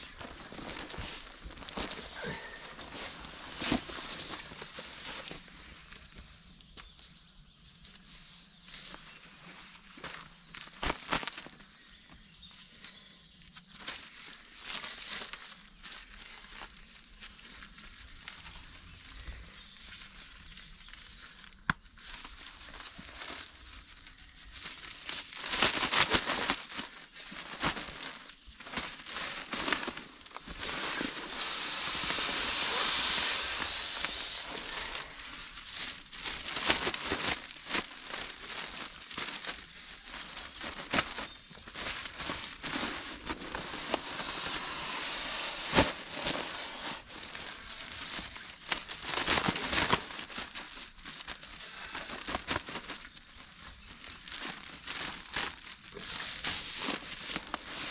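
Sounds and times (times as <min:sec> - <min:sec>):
hissing swell: 0:31.2 - 0:35.0, 0:43.9 - 0:47.1.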